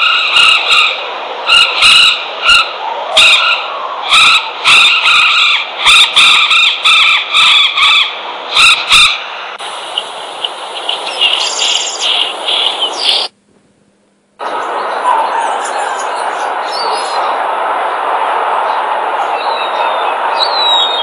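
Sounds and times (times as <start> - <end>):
recorded bird calls: 0.0 - 13.3, 14.4 - 17.4, 18.6 - 21.0
background hiss: 8.2 - 21.0.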